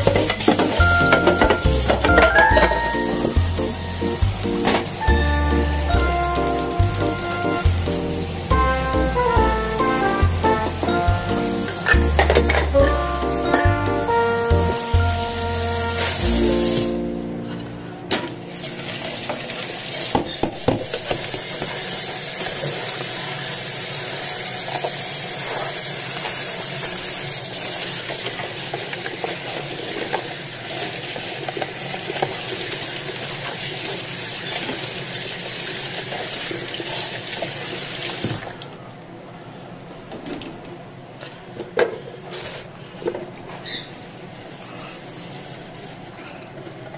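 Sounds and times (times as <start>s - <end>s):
dishware clinking: 0.1s - 3.4s.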